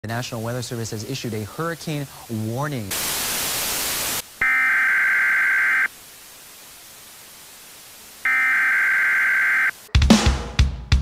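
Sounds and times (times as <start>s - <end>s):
faint hiss: 0.1s - 9.9s
buzzy electronic alert tones: 4.4s - 5.9s, 8.2s - 9.7s.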